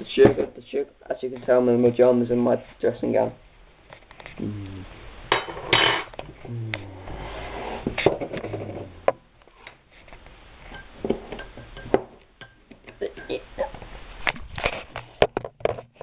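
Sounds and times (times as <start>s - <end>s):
rustling clatter of dishes: 7.9s - 8.9s.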